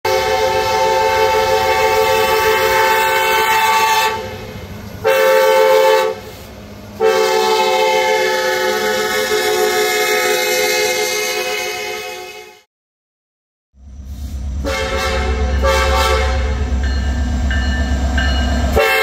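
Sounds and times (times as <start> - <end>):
locomotive air horn blasts: 0.1 - 4.4, 5.0 - 12.7, 14.6 - 16.7, 18.7 - 19.0.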